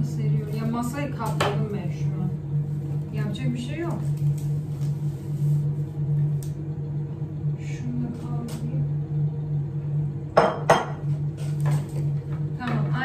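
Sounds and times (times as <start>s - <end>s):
steady low hum: 0.0s - 13.0s
dishes clinking: 10.4s - 11.1s.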